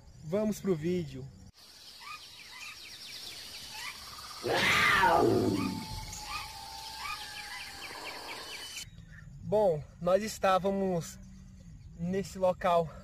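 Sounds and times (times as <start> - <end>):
birds chirping: 0.0 - 12.8
high insect-like hiss: 0.0 - 12.9
loud animal roar: 4.4 - 8.4.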